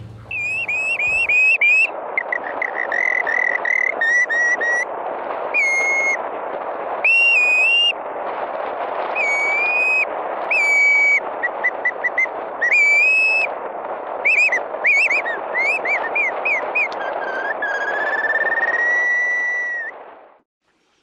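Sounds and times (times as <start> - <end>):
background hiss: 0.0 - 1.3
bird decoy whistle: 0.0 - 1.5, 14.3 - 19.9.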